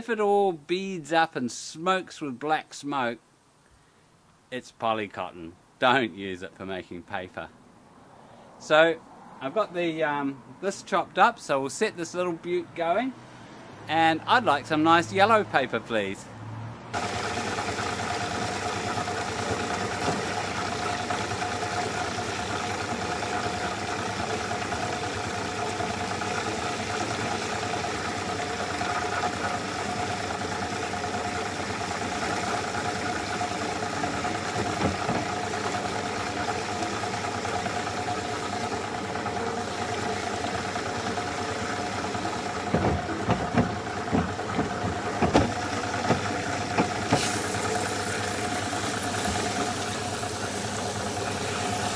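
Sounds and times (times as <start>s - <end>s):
motor hum of beater machine: 16.9s - 51.9s
water churning: 17.0s - 51.9s
sharp knocks: 34.5s - 35.4s, 42.6s - 47.3s.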